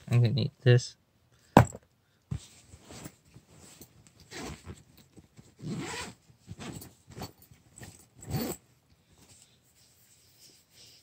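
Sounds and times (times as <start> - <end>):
zipper on fabric bag: 4.3 - 4.8, 5.6 - 7.4, 8.2 - 8.6.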